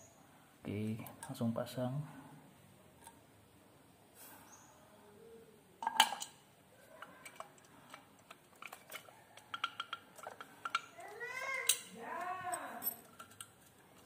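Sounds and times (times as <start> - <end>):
clicks of hard parts handled: 7.2 - 11.9.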